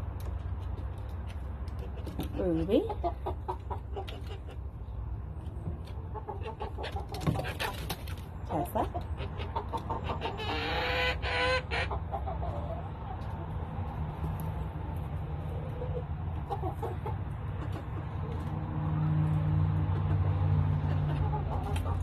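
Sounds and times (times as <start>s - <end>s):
chickens clucking: 0.1s - 22.0s
loud chicken call: 10.0s - 12.0s.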